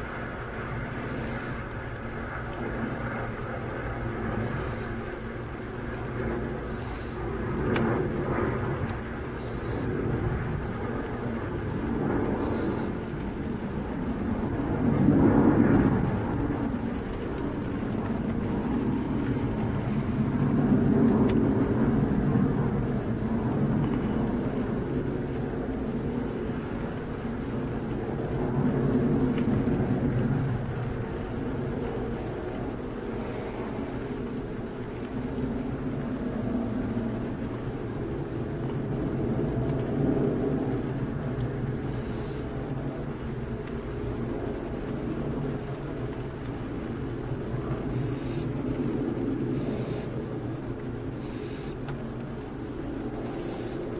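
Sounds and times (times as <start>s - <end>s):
distant vehicles rumbling: 0.0s - 53.9s
owl chick high-pitched call: 1.0s - 1.6s, 4.4s - 5.1s, 6.6s - 7.2s, 9.3s - 9.9s, 12.4s - 13.0s, 41.9s - 42.5s, 47.9s - 48.5s, 49.5s - 50.2s, 51.2s - 51.8s, 53.2s - 53.8s.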